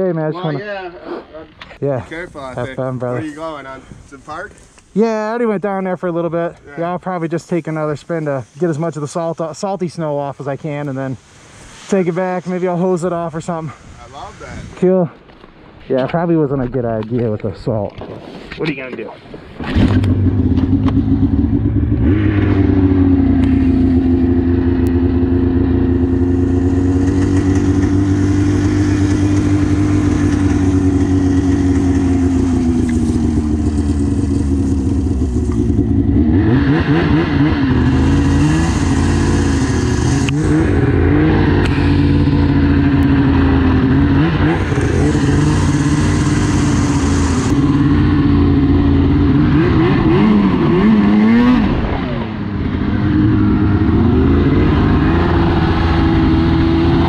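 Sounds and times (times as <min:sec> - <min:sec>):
rushing hiss: 0:07.2 - 0:14.8
snowmobile engine running: 0:19.6 - 0:57.0.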